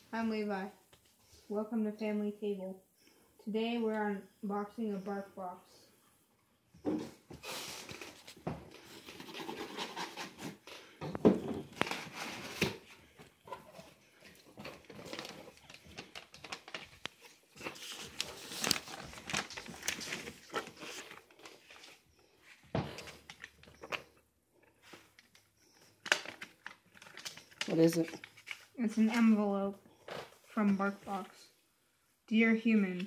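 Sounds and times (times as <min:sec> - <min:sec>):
cardboard and paper rustling: 0:06.9 - 0:24.1, 0:24.8 - 0:31.4.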